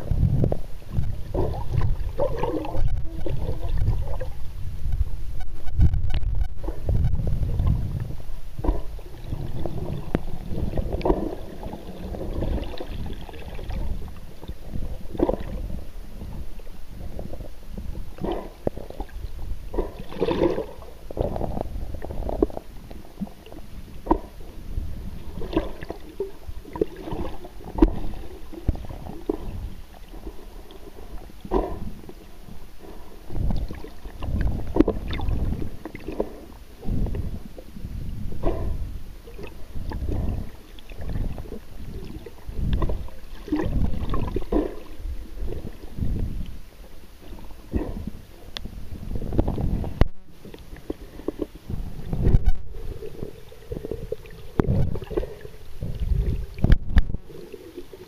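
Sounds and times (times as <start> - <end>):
underwater rumble of moving water: 0.0 - 58.0
underwater clicks and pops: 0.4 - 9.0, 54.5 - 55.3, 56.1 - 57.2.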